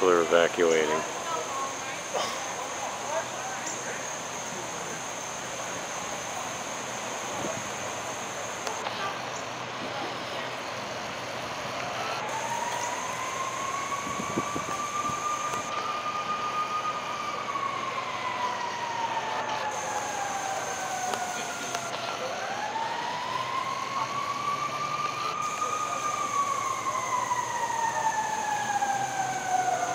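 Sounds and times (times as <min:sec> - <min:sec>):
steady hiss: 0:00.0 - 0:18.0, 0:18.6 - 0:22.4
emergency vehicle siren wailing: 0:00.0 - 0:29.9.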